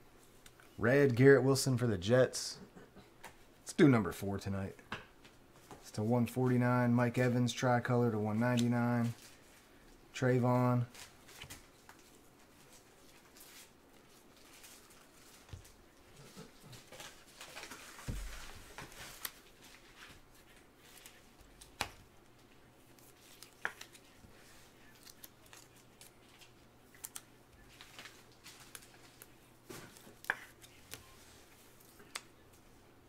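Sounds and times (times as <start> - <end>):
cards rustling: 16.4 - 32.6
cards clicking and snapping: 22.9 - 24.1, 24.9 - 31.0.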